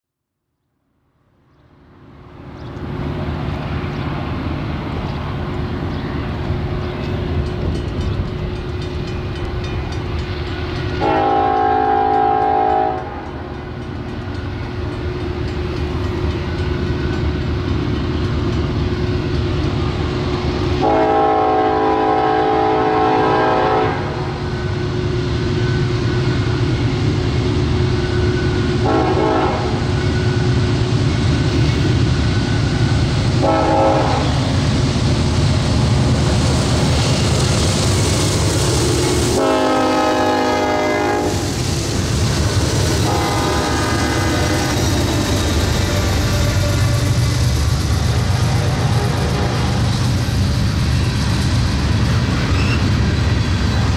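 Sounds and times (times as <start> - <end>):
diesel locomotive engine drone: 1.1 - 53.9
locomotive air horn blasts: 11.0 - 13.3, 20.8 - 24.4, 28.7 - 29.9, 33.4 - 34.5, 39.3 - 41.4, 43.0 - 44.8, 48.4 - 49.9.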